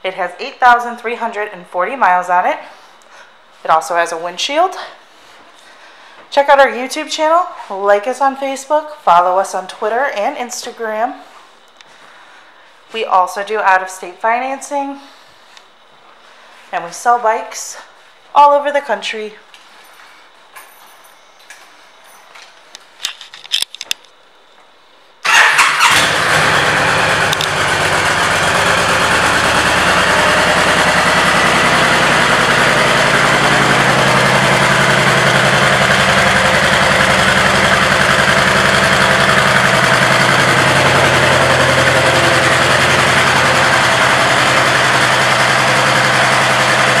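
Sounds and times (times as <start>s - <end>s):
motorcycle engine starting and idling: 25.2s - 47.0s.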